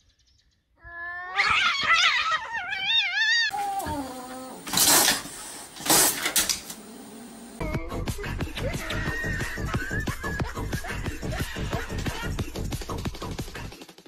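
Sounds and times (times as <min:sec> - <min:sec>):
cat cry falling in pitch: 0:00.8 - 0:04.1
cats yowling: 0:00.8 - 0:04.6.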